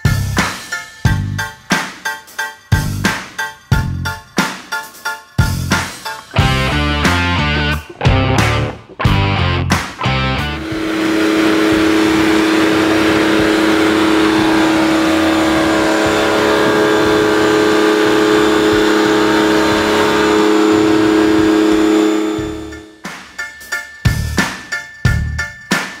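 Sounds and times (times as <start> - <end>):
pressure washer motor hum: 6.4 - 22.8.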